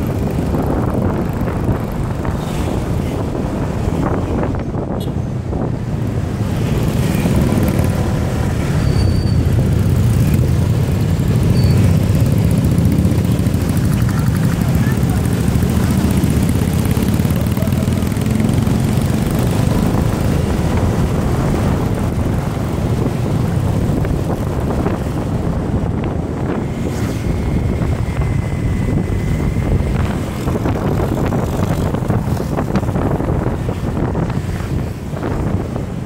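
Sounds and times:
wind buffeting microphone: 0.0s - 8.6s, 18.1s - 36.0s
motor scooters running: 5.9s - 36.0s.

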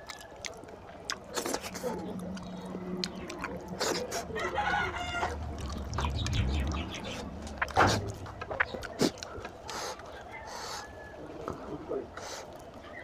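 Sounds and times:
rooster crowing: 3.6s - 6.7s.

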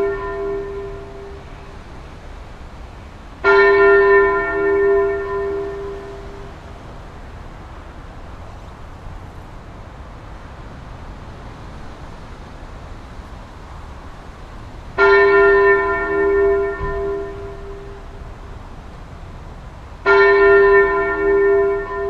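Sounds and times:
loud bell-like gong chime: 0.0s - 1.5s, 3.5s - 6.5s, 15.0s - 18.1s, 20.1s - 22.0s
low steady background noise: 0.0s - 22.0s.

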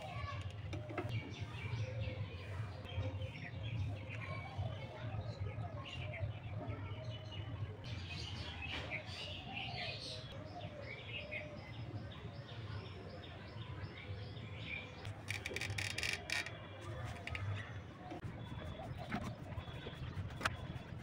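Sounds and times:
rustling and clicking: 15.1s - 18.2s.

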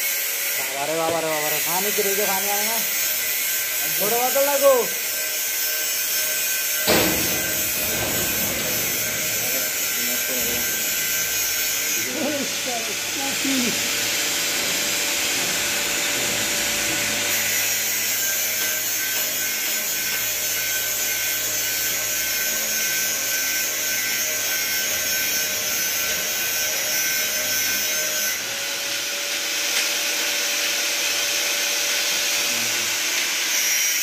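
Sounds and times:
loud machine hiss: 0.0s - 29.4s.

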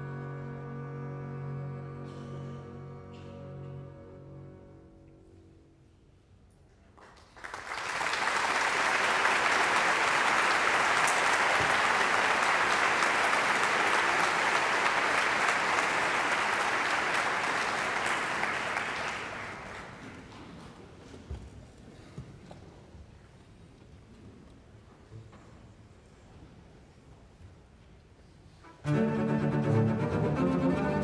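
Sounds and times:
audience applauding: 7.0s - 20.3s.

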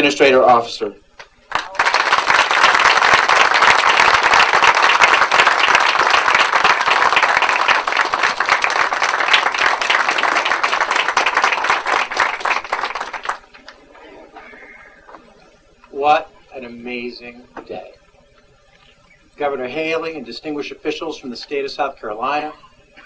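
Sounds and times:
audience applauding: 1.5s - 14.9s.

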